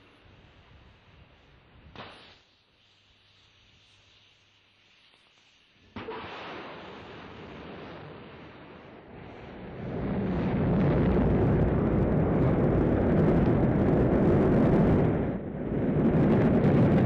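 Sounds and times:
rocket engine roar: 6.8 - 17.0.

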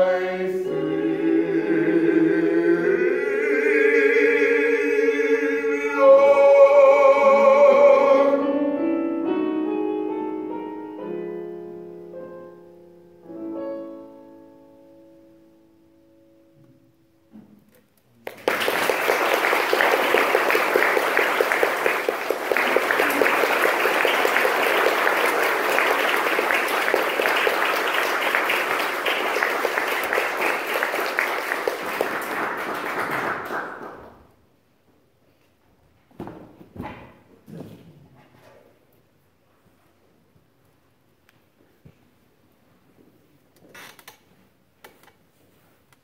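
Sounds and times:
audience applause: 18.2 - 34.2.

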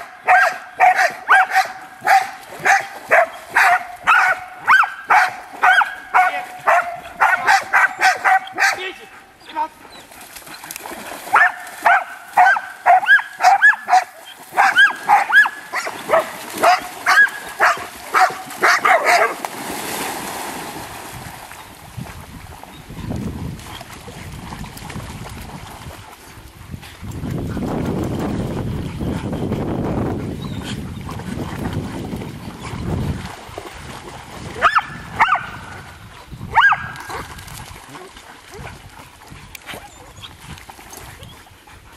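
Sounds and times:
dogs barking high-pitched: 0.0 - 9.0, 11.3 - 19.4, 34.6 - 35.8, 36.5 - 37.3
dogs splashing through water: 0.0 - 41.9
dog yipping: 11.4 - 19.3.

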